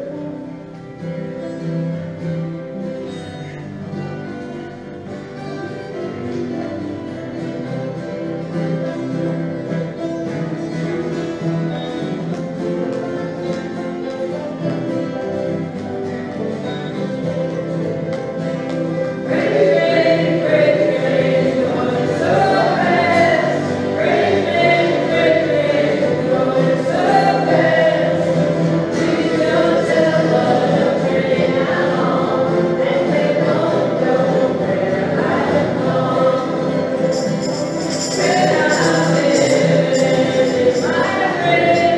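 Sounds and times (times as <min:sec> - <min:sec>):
acoustic guitars strumming: 0:00.0 - 0:41.9
group singing along: 0:19.2 - 0:41.9.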